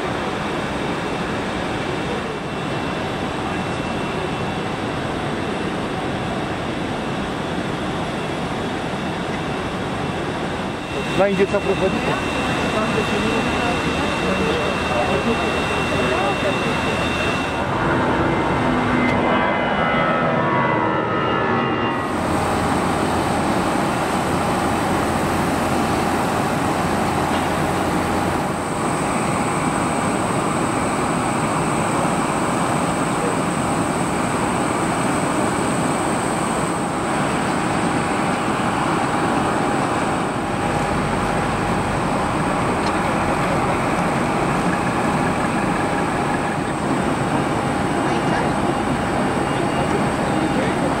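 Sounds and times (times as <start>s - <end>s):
jet airliner climbing away: 0.0s - 51.0s
de-icing machinery spraying: 22.0s - 51.0s.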